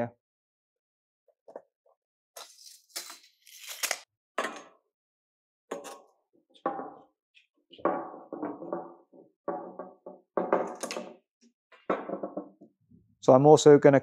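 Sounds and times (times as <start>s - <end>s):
pipe knocking against board: 7.8s - 11.2s, 11.9s - 12.7s.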